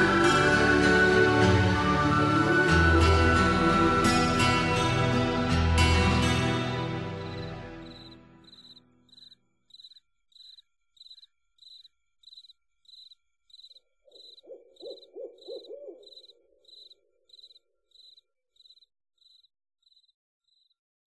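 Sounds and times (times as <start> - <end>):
crickets chirping: 7.2 - 20.8
owl hooting: 7.8 - 18.2.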